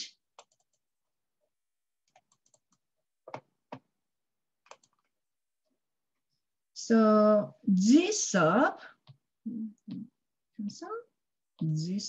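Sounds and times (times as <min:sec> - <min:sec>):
computer keyboard typing clicks: 0:00.4 - 0:00.8, 0:02.1 - 0:03.8, 0:04.6 - 0:05.1.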